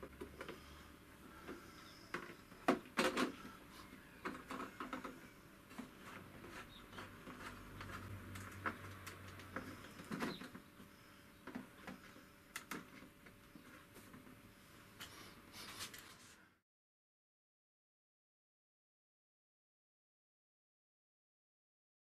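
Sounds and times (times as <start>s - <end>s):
hands handling plastic hull: 1.4s - 10.8s.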